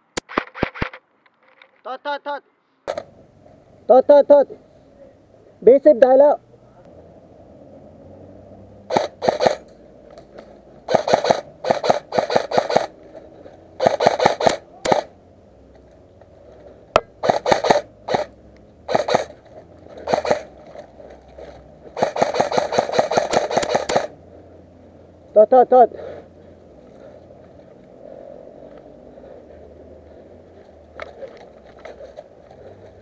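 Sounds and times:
single sharp cracks: 0:02.9 - 0:03.1, 0:08.9 - 0:09.7, 0:13.8 - 0:15.2, 0:22.0 - 0:24.2
airsoft rifle firing bursts: 0:08.9 - 0:09.7, 0:10.9 - 0:13.0, 0:13.8 - 0:15.2, 0:17.1 - 0:19.4, 0:20.0 - 0:20.5, 0:21.9 - 0:24.2.

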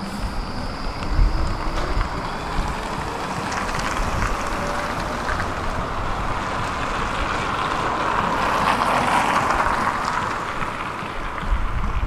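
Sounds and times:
faint steady whine: 0:00.0 - 0:07.7
tram wheels rumbling on rails: 0:00.0 - 0:12.0.

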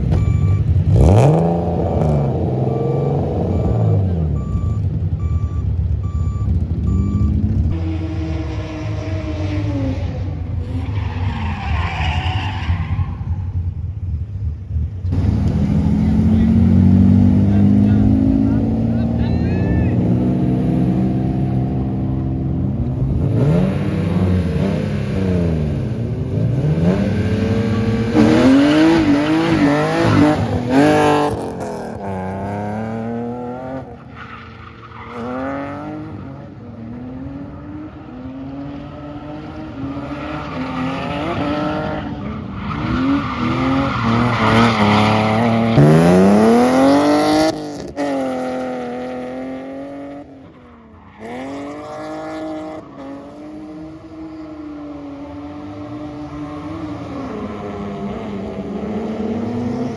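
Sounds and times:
car engine revving: 0:00.0 - 0:05.2, 0:14.7 - 0:59.9
tyre squeal: 0:10.6 - 0:13.6.

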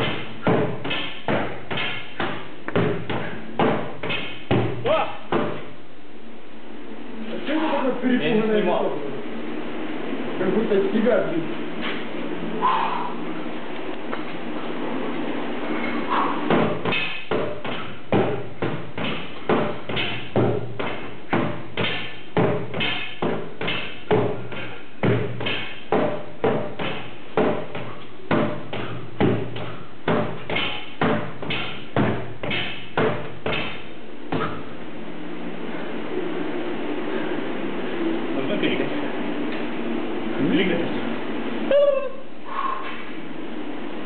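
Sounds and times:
sword striking tyres: 0:16.1 - 0:34.6.

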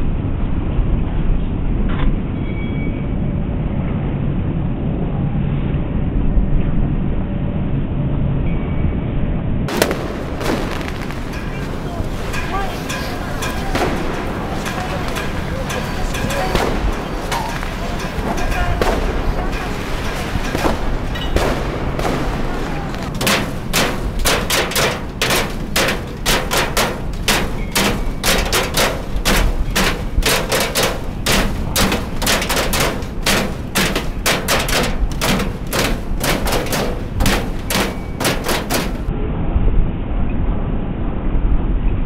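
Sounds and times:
low rumble: 0:09.5 - 0:42.0
sharp bangs or knocks: 0:09.7 - 0:39.1.

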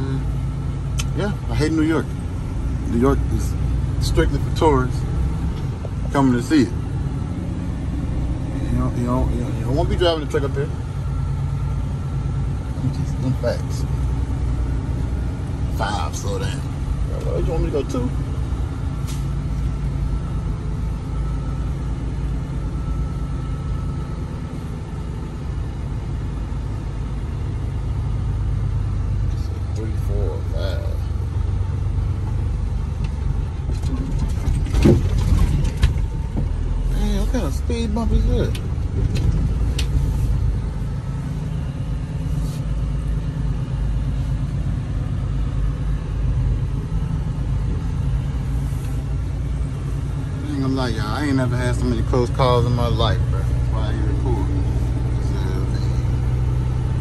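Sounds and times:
truck diesel engine rumble: 0:00.0 - 0:57.0.

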